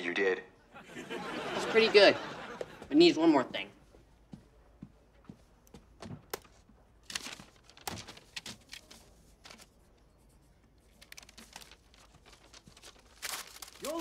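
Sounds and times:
paper rustling and crinkling: 6.0s - 14.0s.

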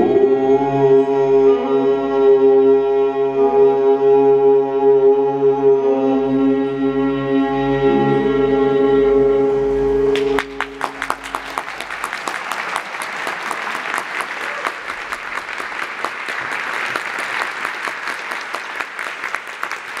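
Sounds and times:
audience applauding: 10.1s - 20.0s.

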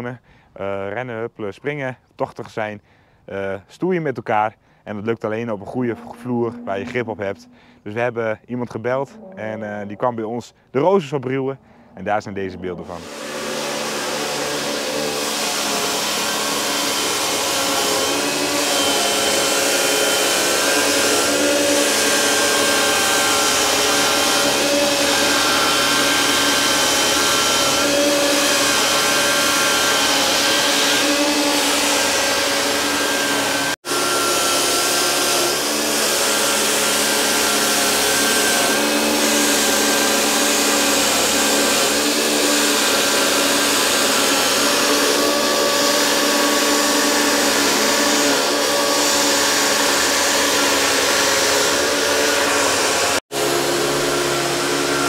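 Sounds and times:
grinding machine cutting concrete: 5.6s - 7.6s, 12.7s - 55.0s.

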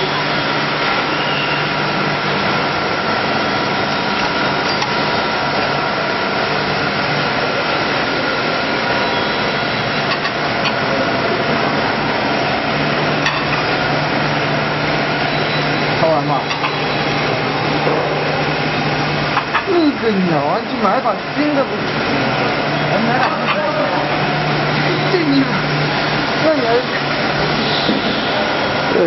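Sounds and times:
vacuum coating machine running: 0.0s - 29.0s.

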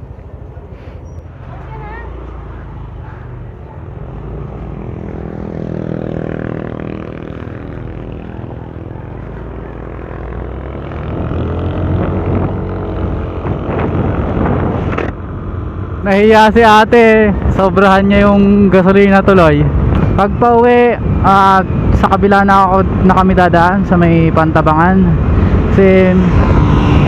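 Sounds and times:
road noise: 0.0s - 27.0s
rushing wind: 0.0s - 27.0s
scooter engine accelerating: 4.0s - 15.1s.

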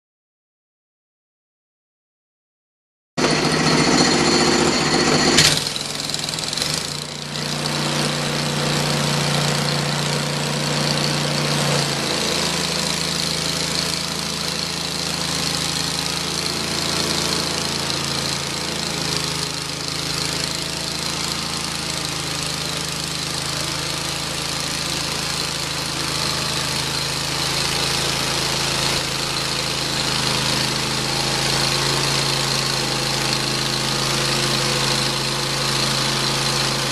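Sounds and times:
high blade whine: 3.2s - 8.5s
bandsaw mill sawing wood: 3.2s - 36.9s.

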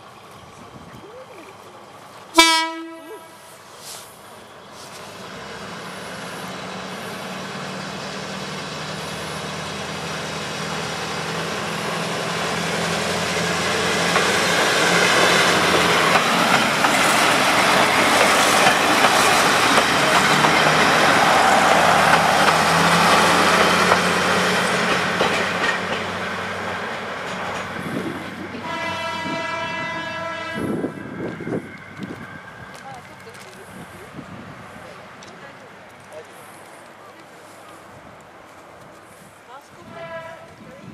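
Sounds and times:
diesel railcar engine drone: 0.0s - 40.9s
train wheels rumbling on rails: 0.0s - 40.9s
train horn blast: 2.4s - 3.5s, 28.6s - 30.9s, 39.8s - 40.6s.

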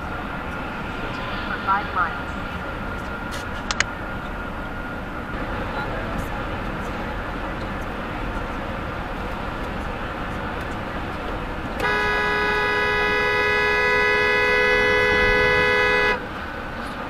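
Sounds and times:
road noise from moving car: 0.0s - 17.0s
two-tone car horn blast: 11.8s - 16.3s.

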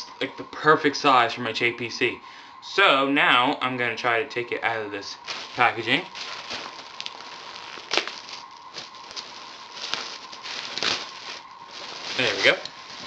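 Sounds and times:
plastic bag crinkling: 5.1s - 13.0s.

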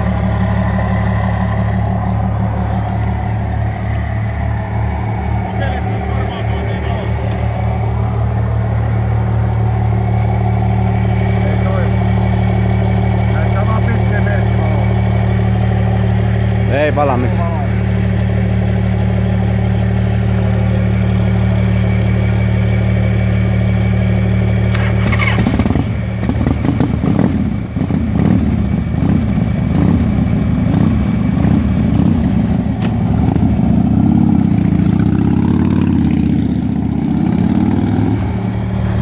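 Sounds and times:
motorcycle engine idling: 0.0s - 39.0s.

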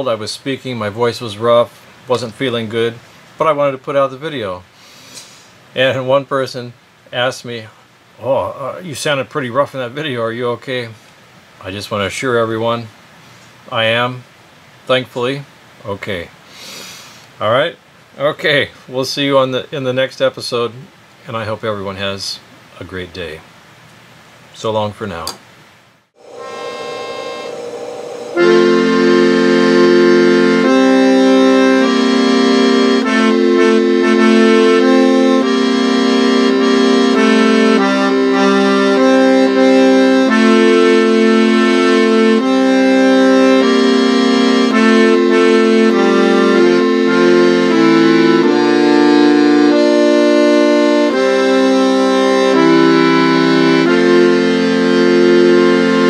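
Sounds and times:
organ playing chords and melody: 26.2s - 56.0s.

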